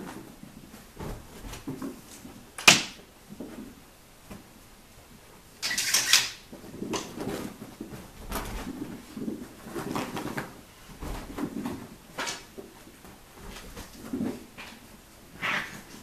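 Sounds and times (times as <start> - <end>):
thumps and rustles on bedding: 0.0 - 2.5, 6.6 - 15.0.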